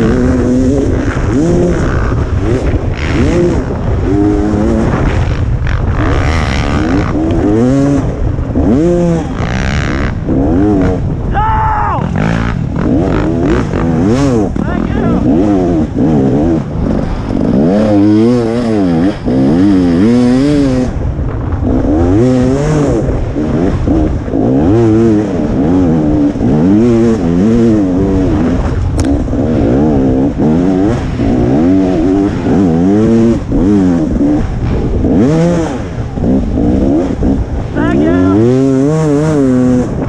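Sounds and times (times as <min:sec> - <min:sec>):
dirt bike engine revving: 0:00.0 - 0:40.0.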